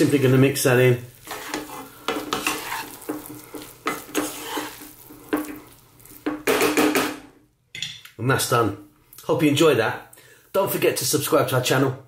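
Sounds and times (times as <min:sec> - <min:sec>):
wooden spatula scraping a pan: 0:00.0 - 0:06.6.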